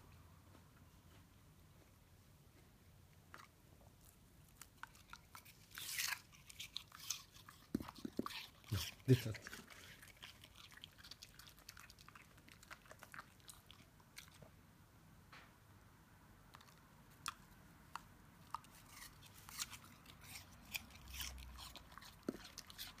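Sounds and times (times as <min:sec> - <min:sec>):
dog crunching pear: 0:03.2 - 0:14.5, 0:16.5 - 0:23.0.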